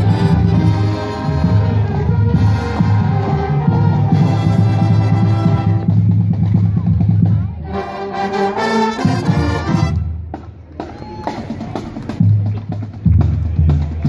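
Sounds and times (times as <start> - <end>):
low brass notes: 0.0 - 6.2
marching band playing: 0.0 - 14.0.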